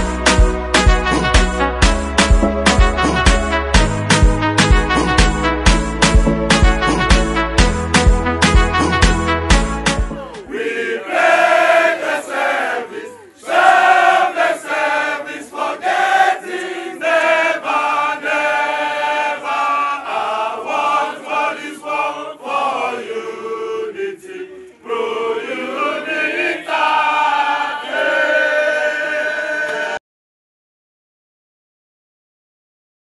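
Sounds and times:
group singing chant-like phrases: 10.1 - 30.0.

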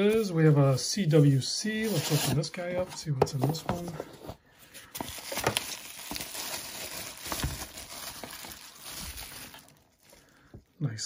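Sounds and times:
plastic wrapping rustling: 4.8 - 10.6.

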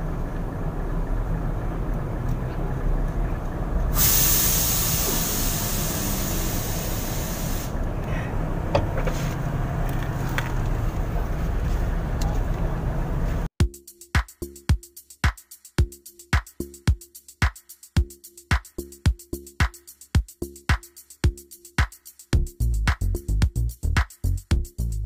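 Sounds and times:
compressed air hissing: 3.9 - 8.2
music with a beat: 13.6 - 25.0.

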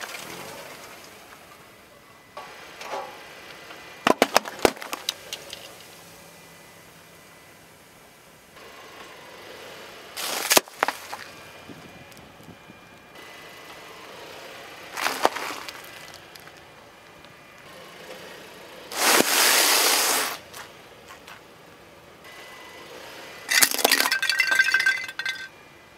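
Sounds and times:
car tyre crushing objects: 0.0 - 1.5, 4.0 - 6.0, 10.2 - 11.4, 15.0 - 16.6, 23.5 - 25.5
cornflakes bag crunching: 15.0 - 16.5
high ringing tones: 23.5 - 25.7.

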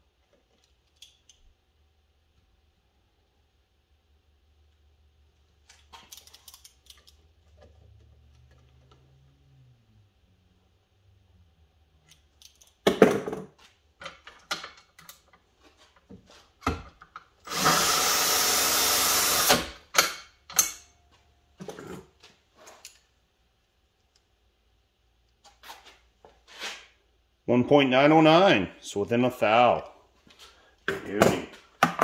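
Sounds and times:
tools and brass handling clicks: 0.3 - 1.5, 5.6 - 9.0, 12.0 - 12.9, 14.0 - 15.4, 19.9 - 21.0
cordless drill running: 17.5 - 19.8.

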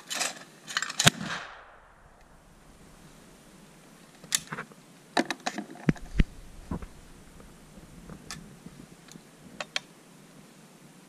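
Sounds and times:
shotgun shot echo: 1.0 - 4.4
dull thumps: 5.9 - 8.9.

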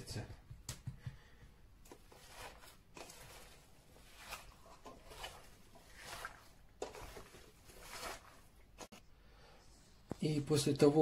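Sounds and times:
hand mixing meat wet rustles: 1.8 - 9.0.

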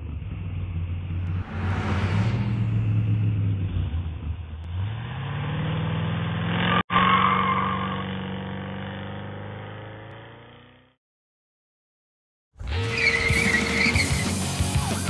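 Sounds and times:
car engine revving: 0.0 - 11.0
tyre squeal: 6.9 - 8.1, 12.6 - 14.5.

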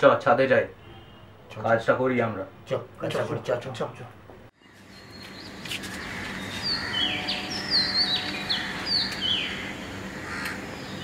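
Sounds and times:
songbirds whistling: 4.7 - 9.8.

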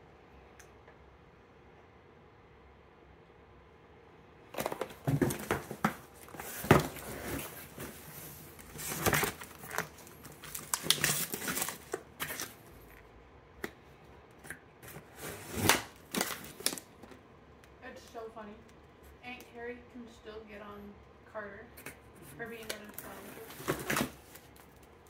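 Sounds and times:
cardboard box rustling and scraping: 4.6 - 12.6, 14.8 - 16.3, 23.0 - 24.5
plastic packaging crinkling: 4.6 - 13.1, 14.9 - 17.2, 22.6 - 25.0.

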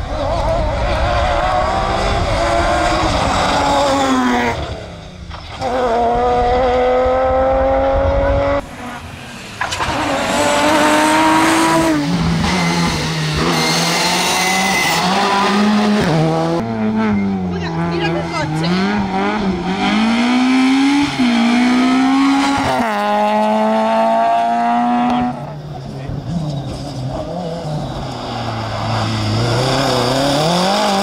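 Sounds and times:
rally car engine at full throttle: 0.0 - 31.0.

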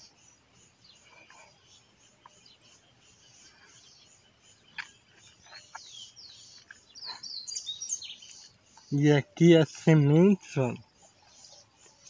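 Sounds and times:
faint birdsong: 0.0 - 12.0.

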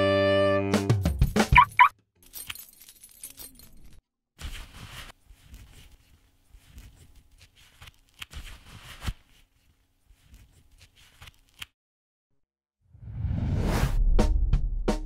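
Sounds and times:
leather gloves rustling and creaking: 4.4 - 11.7.

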